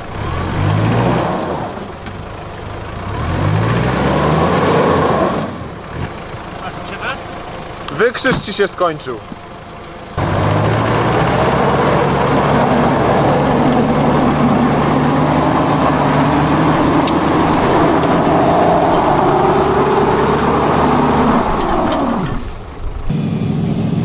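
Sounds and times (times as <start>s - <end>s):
off-road vehicle engine running: 0.0s - 24.0s.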